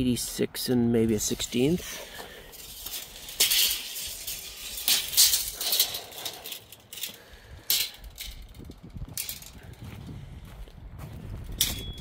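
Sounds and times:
footsteps on wood-chip mulch: 0:09.0 - 0:11.8.

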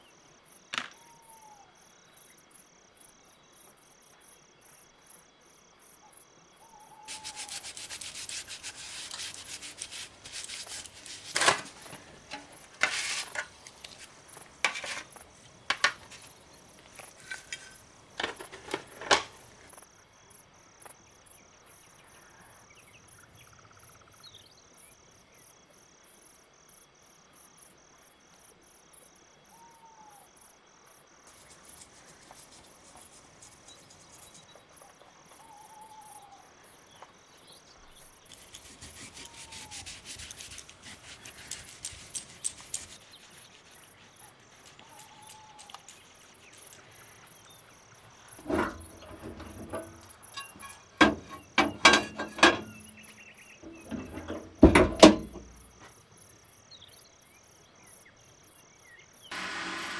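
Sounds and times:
hands rustling: 0:07.1 - 0:17.8, 0:38.3 - 0:47.4.

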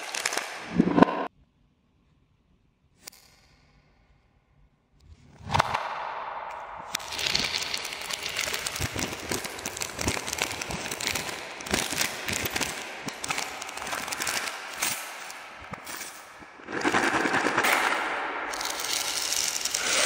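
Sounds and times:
cellophane packaging crinkling: 0:07.0 - 0:15.9.

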